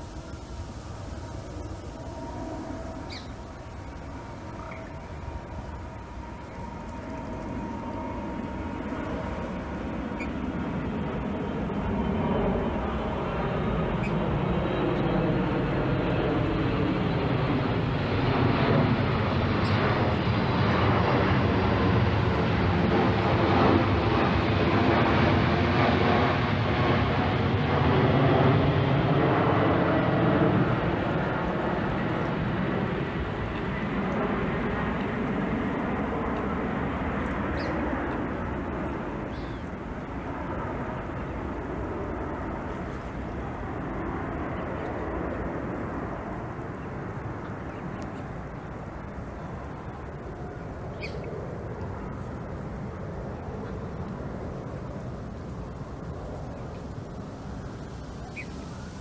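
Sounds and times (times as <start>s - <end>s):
aircraft engine noise: 0.0s - 59.0s
bird chirps: 3.0s - 5.0s, 10.1s - 10.4s, 13.9s - 14.2s, 37.5s - 37.8s, 39.3s - 39.7s, 50.9s - 51.3s, 58.2s - 58.8s.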